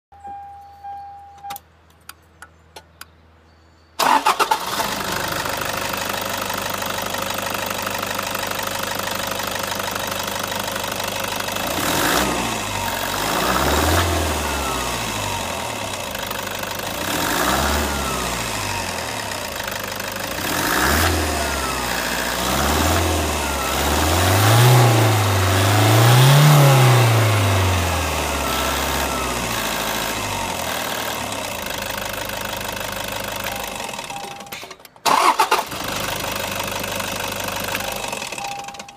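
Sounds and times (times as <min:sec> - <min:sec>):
short beep: 0:00.1 - 0:01.6, 0:33.4 - 0:34.8, 0:37.8 - 0:38.9
diesel engine idling and revving: 0:04.0 - 0:38.9.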